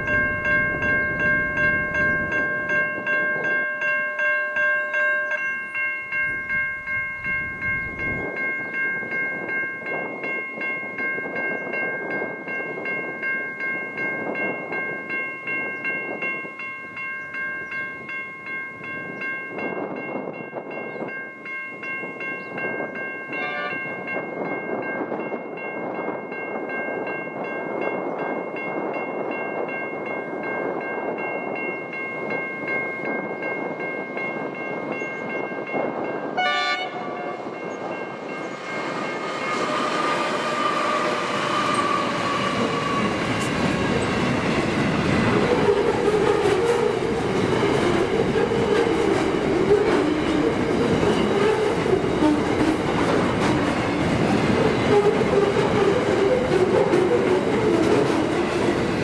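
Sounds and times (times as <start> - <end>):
level crossing bell ringing: 0.0 - 27.6
freight train passing: 0.0 - 59.0
train wheels clattering: 37.6 - 59.0.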